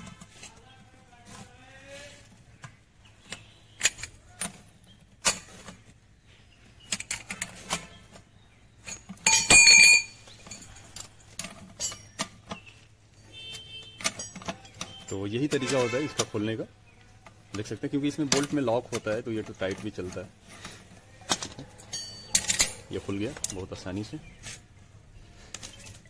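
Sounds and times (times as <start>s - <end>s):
metal hand tools clinking: 8.8s - 16.5s, 18.2s - 23.7s.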